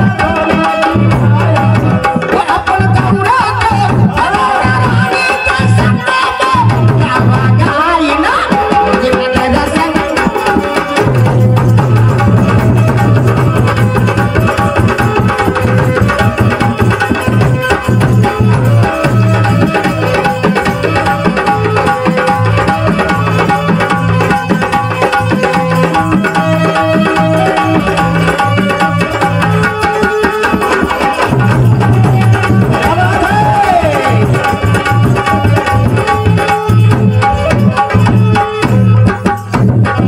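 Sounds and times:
hand drums beating: 0:00.0 - 0:40.0.

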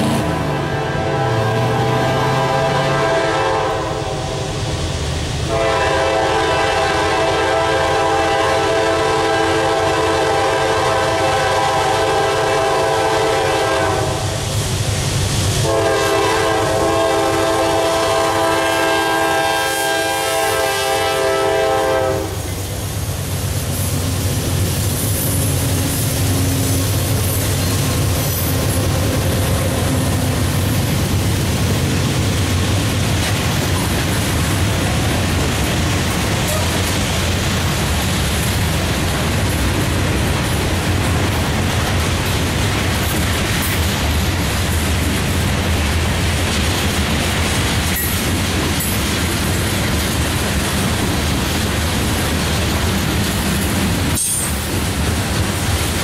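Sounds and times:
locomotive air horn blasts: 0:00.0 - 0:04.6, 0:05.5 - 0:14.4, 0:15.6 - 0:22.5
rumble of passing locomotives: 0:00.0 - 0:56.0
train cars clacking on rails: 0:00.0 - 0:56.0.

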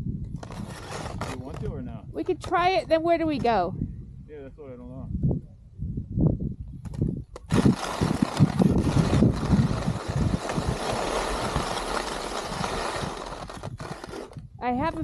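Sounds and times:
wind buffeting microphone: 0:00.0 - 0:15.0
skis sliding over snow: 0:00.4 - 0:01.7, 0:07.5 - 0:14.4.

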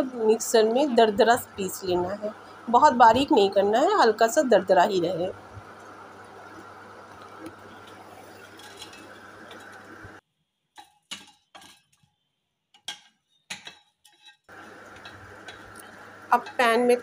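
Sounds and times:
steady low hum: 0:00.0 - 0:10.2, 0:14.5 - 0:17.0
wooden spatula scraping wok: 0:07.4 - 0:10.1, 0:13.6 - 0:16.9.

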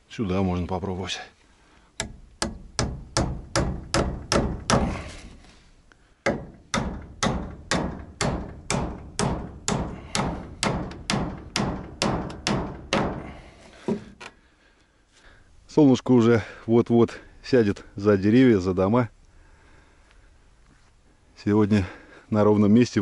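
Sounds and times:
hammer driving nails into wood: 0:02.0 - 0:05.2, 0:06.2 - 0:14.3.

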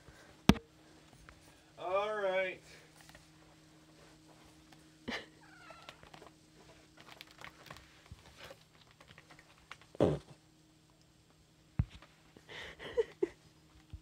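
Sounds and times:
cat meowing: 0:05.4 - 0:06.2.

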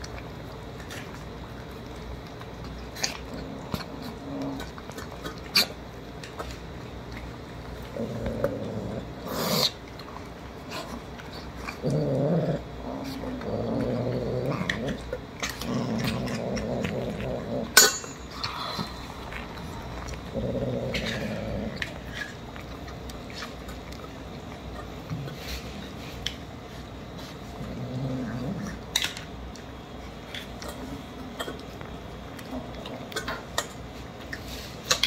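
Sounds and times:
kittens eating: 0:00.0 - 0:35.0
cat growling: 0:07.9 - 0:09.8, 0:11.6 - 0:17.8, 0:18.4 - 0:22.3, 0:27.6 - 0:28.8.

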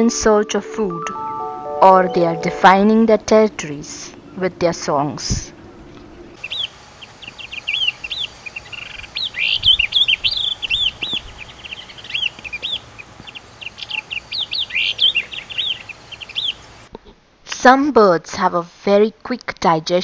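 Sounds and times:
small songbirds chirping: 0:05.5 - 0:16.9.

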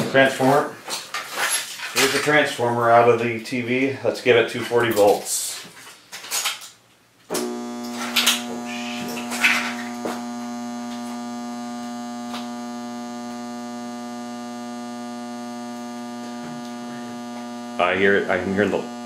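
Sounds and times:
transformer humming loudly: 0:07.3 - 0:19.0.

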